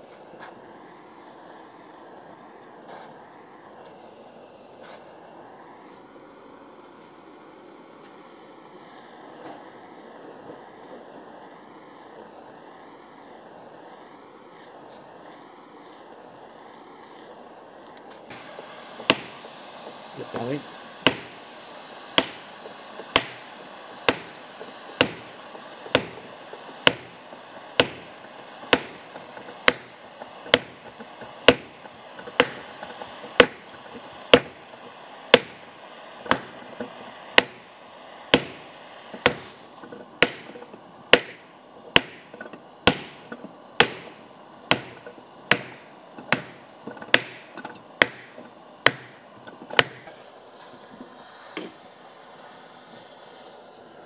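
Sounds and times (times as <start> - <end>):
hammer blows on metal ringing: 22.2 - 32.7.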